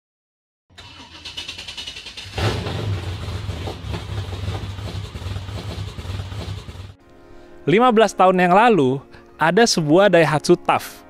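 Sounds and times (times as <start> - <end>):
vehicle engine starting and rumbling: 0.7 - 7.0.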